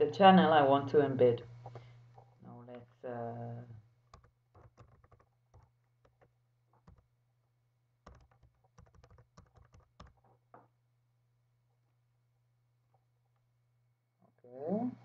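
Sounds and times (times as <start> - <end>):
keyboard keys clicking: 4.1 - 7.1, 8.0 - 10.3.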